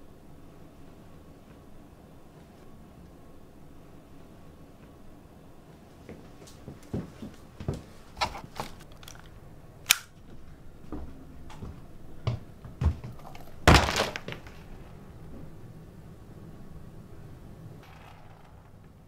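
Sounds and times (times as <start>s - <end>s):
pistol metallic clicks: 8.8s - 10.2s
loud pistol clack: 9.9s - 10.1s.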